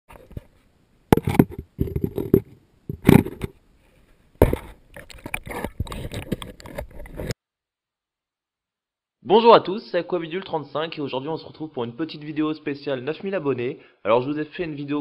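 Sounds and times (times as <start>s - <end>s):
knocks and scrapes on camera housing: 1.1s - 3.6s, 4.4s - 7.4s.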